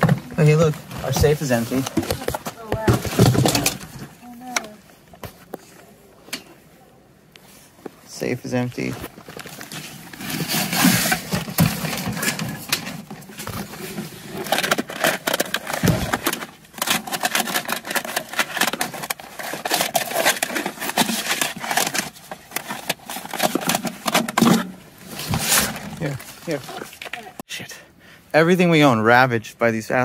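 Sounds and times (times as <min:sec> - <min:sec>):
plastic bags rustling: 0:00.0 - 0:04.4, 0:08.8 - 0:27.4.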